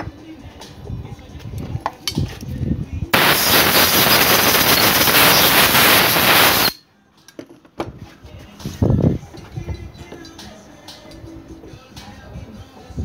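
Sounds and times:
pneumatic tool air rush: 3.2 - 6.8.

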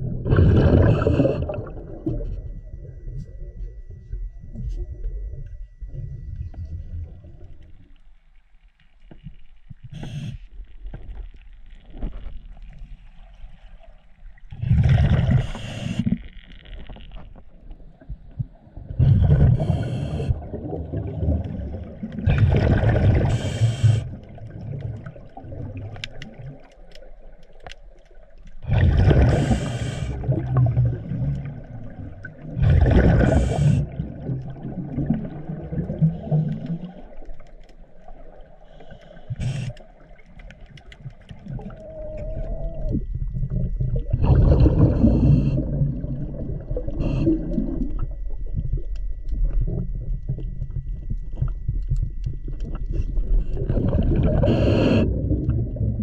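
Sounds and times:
underwater bubbling exhaled breath: 0.0 - 7.8, 14.5 - 16.3, 18.3 - 26.7, 28.6 - 56.0
low rumbling background: 0.0 - 8.7, 28.5 - 56.0.

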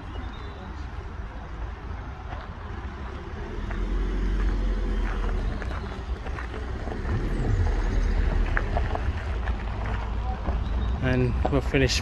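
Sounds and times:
footsteps on gravel: 2.2 - 11.6
low steady rumble: 6.4 - 10.1.

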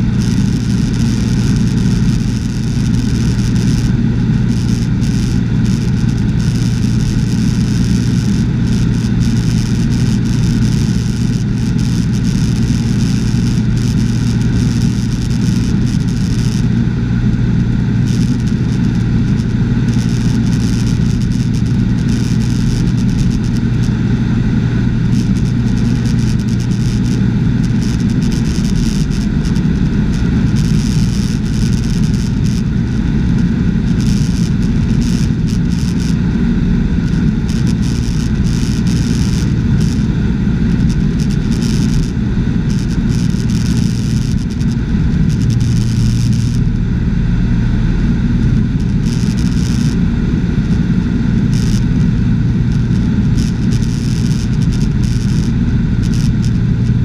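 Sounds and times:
propeller plane engine droning: 0.0 - 57.0.

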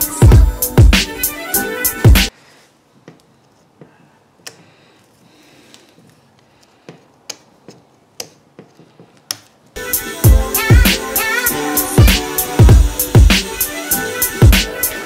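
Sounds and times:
background music: 0.0 - 2.3, 9.8 - 15.0.

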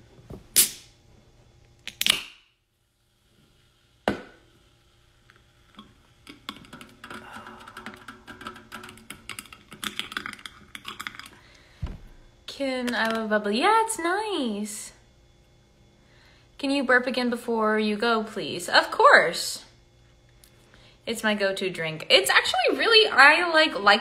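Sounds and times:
fingernails tapping on a can: 6.3 - 11.3.

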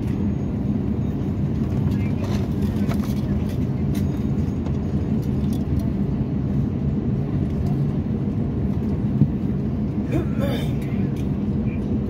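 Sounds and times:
aircraft cabin rumble taxiing: 0.0 - 12.0.

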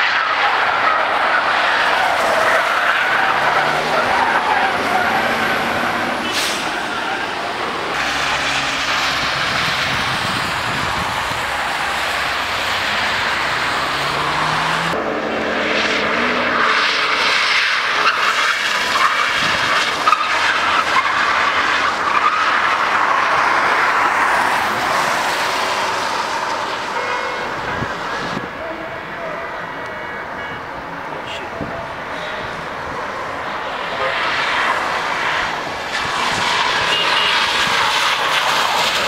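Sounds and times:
car engine revving: 0.0 - 39.0
tyres hissing and squealing: 0.4 - 15.0.

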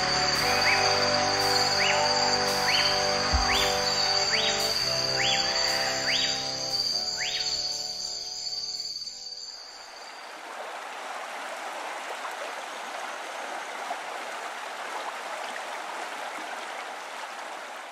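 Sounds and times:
flowing river water: 0.0 - 6.8, 9.7 - 17.9
music: 0.0 - 9.4.

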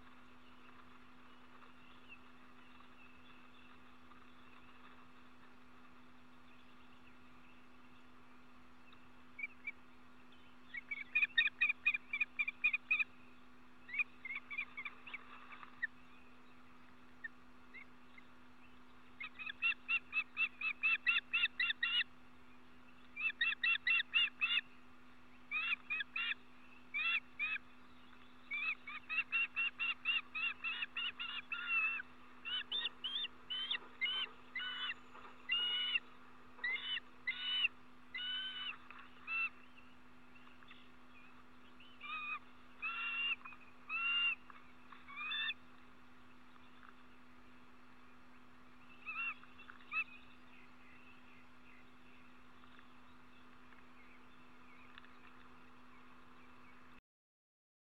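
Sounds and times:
low steady hum: 0.0 - 57.0
birds whistling chirps: 8.8 - 13.2, 13.8 - 45.7, 48.8 - 55.3.

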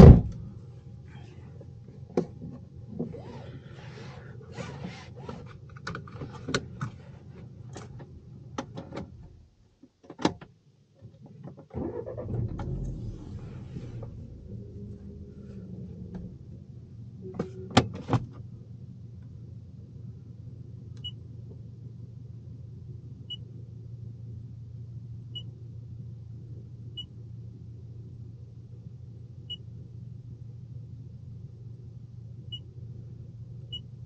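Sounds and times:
car engine idling: 11.7 - 20.7.

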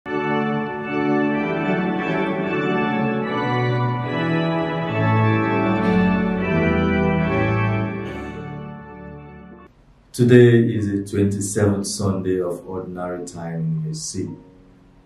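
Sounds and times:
bass line: 0.1 - 9.7
keyboard chords: 0.1 - 9.7.

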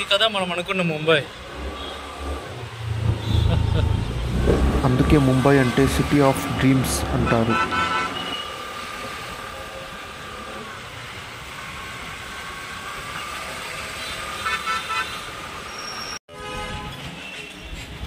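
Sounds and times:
road traffic: 0.0 - 18.0
car horn honking: 3.0 - 4.7, 6.7 - 8.6, 14.0 - 15.3, 16.3 - 17.4.

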